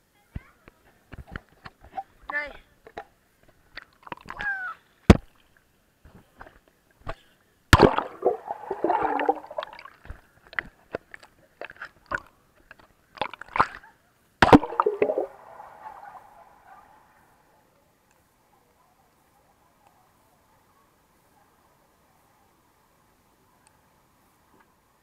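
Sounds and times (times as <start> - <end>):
pool water splashing: 7.8 - 10.1, 14.4 - 17.6.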